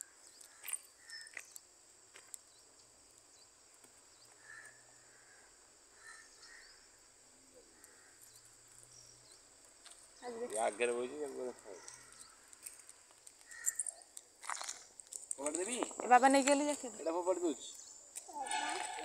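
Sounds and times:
high-pitched insect drone: 15.4s - 19.0s.

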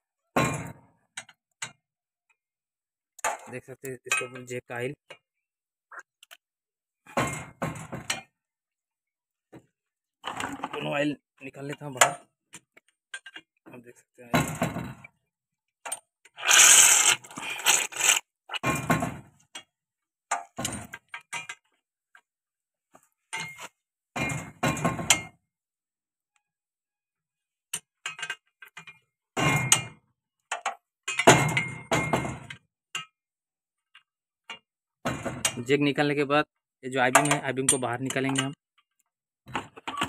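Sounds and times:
spanner and steel fittings clanking: 15.9s - 18.2s.

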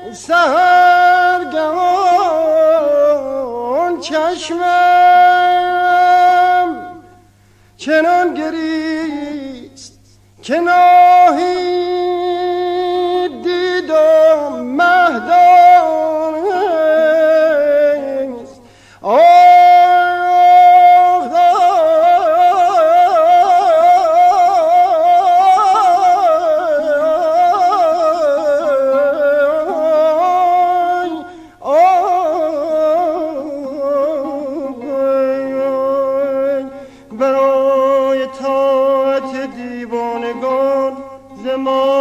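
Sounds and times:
man singing with vibrato: 0.0s - 42.0s.

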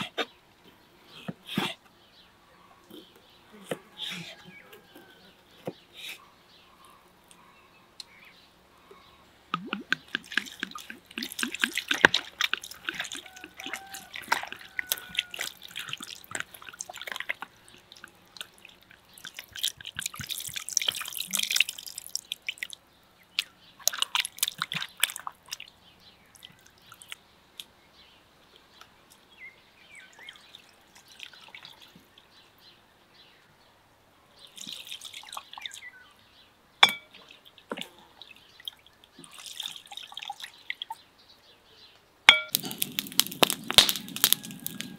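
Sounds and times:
water splashing in a plastic bowl: 9.5s - 22.8s, 23.4s - 25.7s, 34.5s - 35.8s, 36.9s - 41.0s, 42.3s - 44.9s
water poured from a jug: 9.6s - 22.8s, 23.8s - 25.7s, 34.5s - 35.8s, 37.7s - 40.8s, 42.5s - 44.9s.

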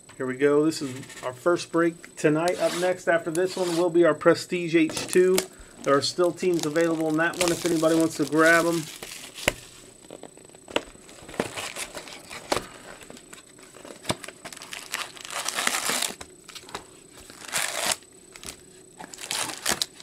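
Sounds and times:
cardboard packaging crinkling: 4.9s - 20.0s.

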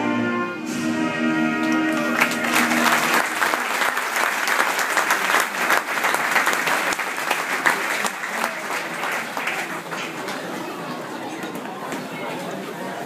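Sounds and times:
crowd applauding: 1.6s - 11.7s.

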